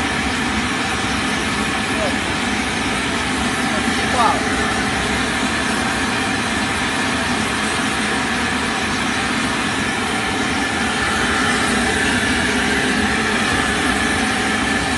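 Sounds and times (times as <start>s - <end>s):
cooling fan running: 0.0s - 14.9s.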